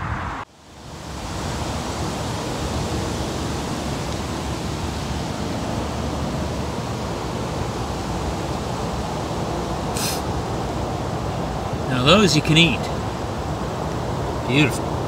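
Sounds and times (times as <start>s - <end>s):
wind blowing across microphone: 0.0s - 12.0s.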